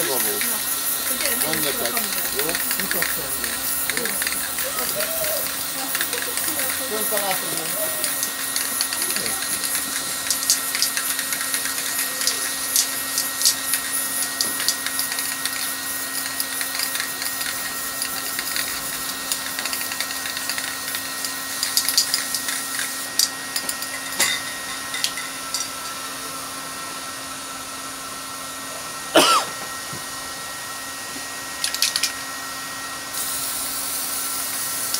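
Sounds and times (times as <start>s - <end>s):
aerosol spray can hissing: 0.0s - 23.9s, 33.1s - 34.9s.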